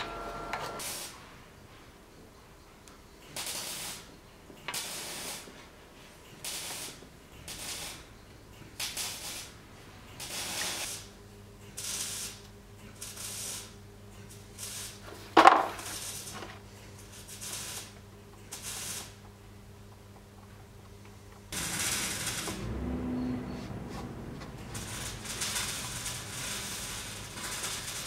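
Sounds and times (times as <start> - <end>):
low steady hum: 0.0 - 0.8, 19.3 - 27.2.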